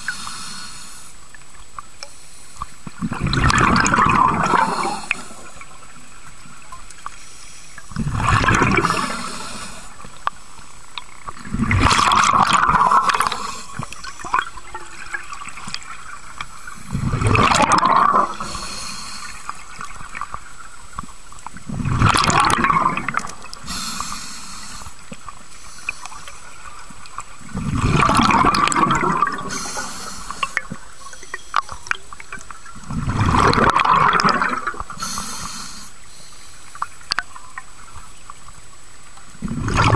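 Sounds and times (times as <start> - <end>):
regulator hiss: 0.0 - 1.2, 18.4 - 19.8, 23.6 - 26.7, 29.4 - 31.8, 34.9 - 36.8
rush of exhaled bubbles: 3.0 - 5.9, 7.9 - 10.0, 11.3 - 16.1, 16.7 - 20.3, 21.6 - 24.1, 27.4 - 30.9, 32.3 - 35.1, 39.4 - 39.9.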